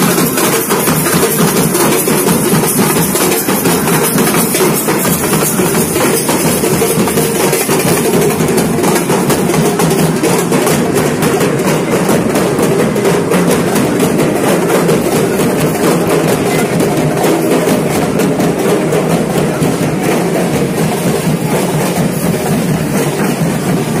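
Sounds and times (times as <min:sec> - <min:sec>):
massed drumming: 0:00.0 - 0:24.0.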